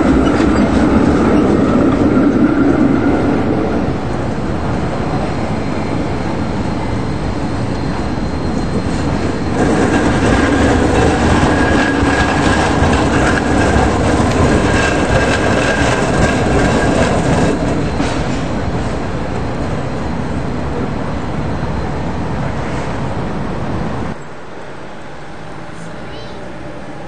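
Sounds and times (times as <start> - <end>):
high squeal: 0.0 - 23.2
tram rumbling on rails: 0.0 - 27.0
wheels clicking over track joints: 8.9 - 18.8.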